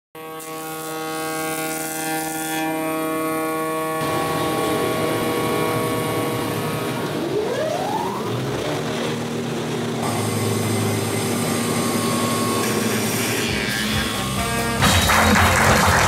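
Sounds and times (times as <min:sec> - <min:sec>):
mechanical hum with held tones: 0:00.2 - 0:16.0
rough mechanical noise: 0:00.3 - 0:15.2
rising whine: 0:03.7 - 0:16.0.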